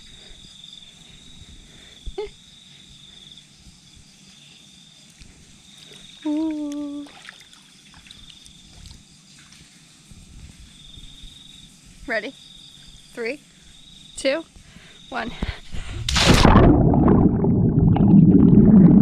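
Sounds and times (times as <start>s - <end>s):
crickets trilling: 0.0s - 15.9s
person humming: 6.2s - 7.2s.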